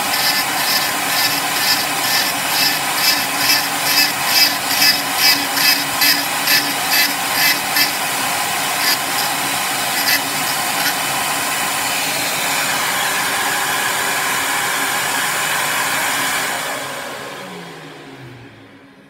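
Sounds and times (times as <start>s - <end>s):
rotary tool cutting: 0.0s - 12.0s
high-speed motor whine: 0.0s - 14.5s.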